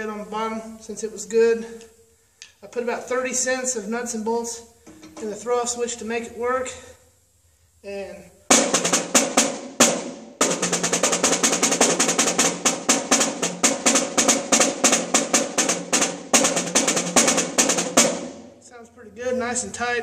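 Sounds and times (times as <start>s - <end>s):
snare drum hits and rolls: 8.5s - 18.5s.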